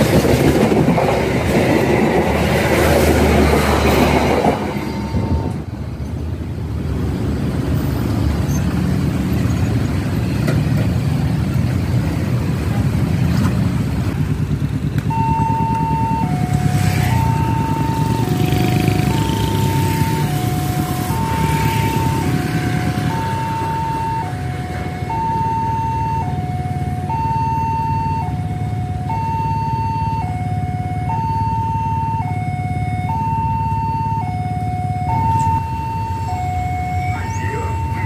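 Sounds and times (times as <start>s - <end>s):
traffic engine rumble: 0.0s - 38.0s
level crossing two-tone alarm: 4.5s - 5.7s, 15.1s - 38.0s.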